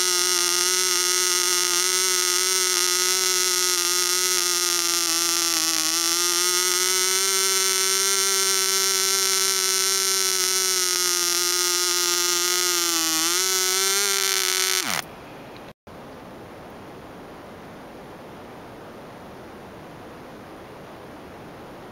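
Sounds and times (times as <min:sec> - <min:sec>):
model engine high-pitched buzz: 0:00.0 - 0:15.0.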